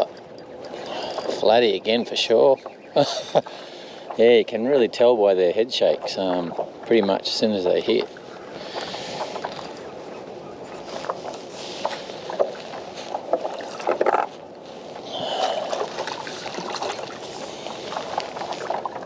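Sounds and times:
water splashing: 10.8 - 19.0
clicks and knocks on kayak: 11.0 - 14.3.

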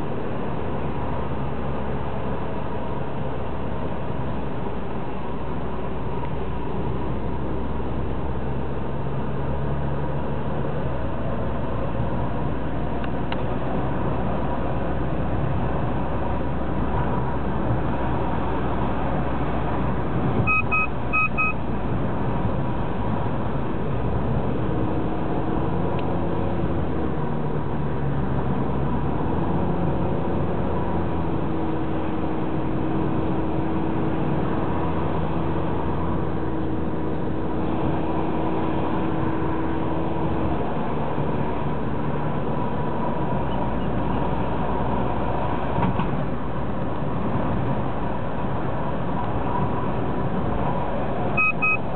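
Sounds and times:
car engine and road noise: 0.0 - 51.9
short high electronic beeps: 20.5 - 21.6, 51.4 - 51.9.

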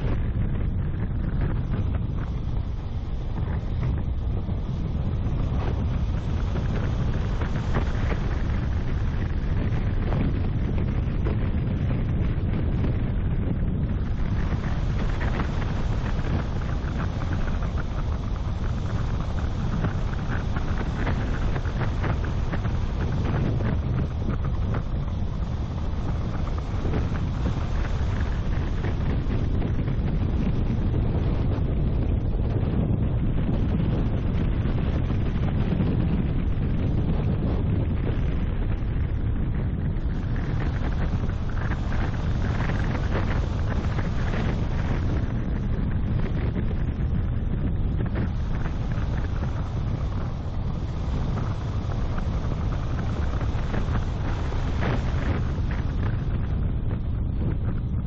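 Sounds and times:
car engine and tyre rumble: 0.0 - 58.0
wind buffeting microphone: 0.0 - 58.0.

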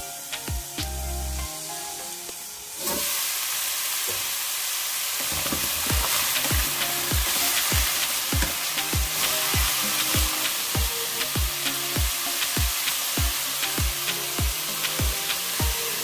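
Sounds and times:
background music with steady beat: 0.0 - 2.8, 5.8 - 16.0
vegetables sizzling in a frying pan: 0.0 - 16.0
wooden spatula stirring vegetables: 5.2 - 10.6.

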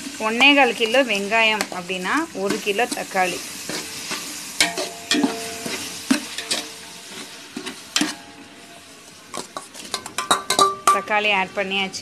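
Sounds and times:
food sizzling in oil: 0.0 - 12.0
metal ladle scraping a pot: 2.4 - 8.2.

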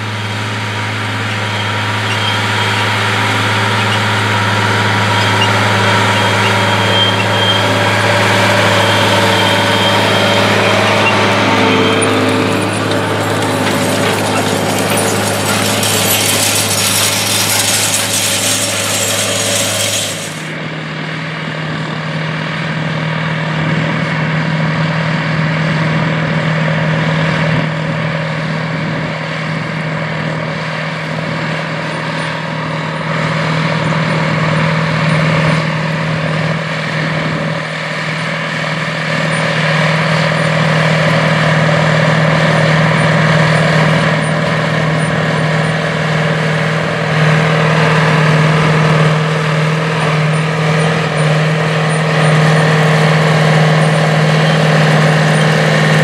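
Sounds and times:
tractor diesel engine: 0.0 - 56.0
loud hiss: 15.0 - 20.5.

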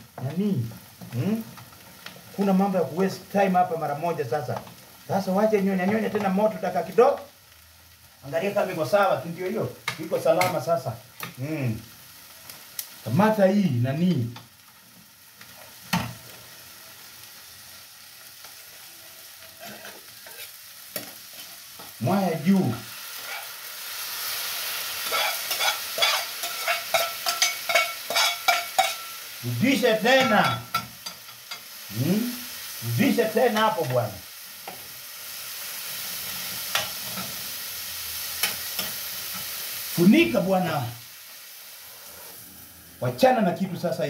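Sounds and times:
food sizzling in a frying pan: 0.0 - 44.0
metal spoon clicking on pan: 25.2 - 29.1.

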